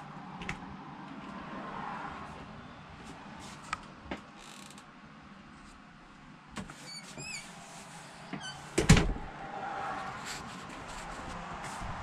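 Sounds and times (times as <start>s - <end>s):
high chirping squeaks: 6.8s - 7.6s
door shutting thump: 8.8s - 9.3s.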